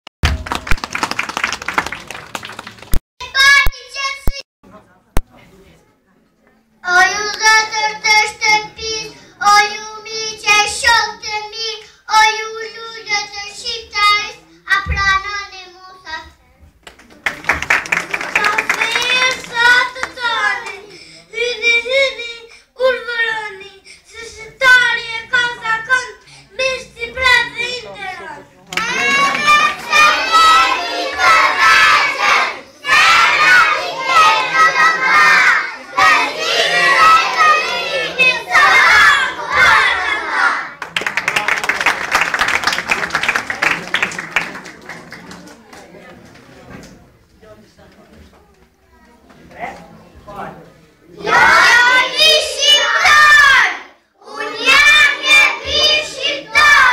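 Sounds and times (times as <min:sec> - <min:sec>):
young children singing: 0:18.2 - 0:20.9, 0:28.7 - 0:40.7, 0:51.1 - 0:56.9.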